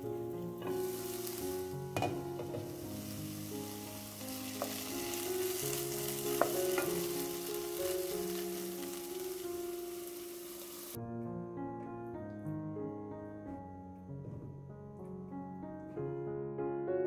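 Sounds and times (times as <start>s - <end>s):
mushrooms sizzling in butter: 0.0s - 11.0s
spatula knocking against pan: 2.0s - 2.7s.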